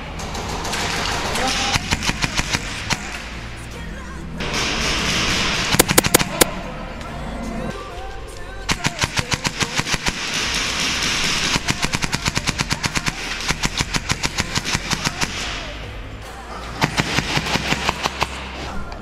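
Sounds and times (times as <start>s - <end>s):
airsoft gun full-auto bursts: 5.7s - 6.5s, 8.7s - 15.5s, 16.9s - 18.4s.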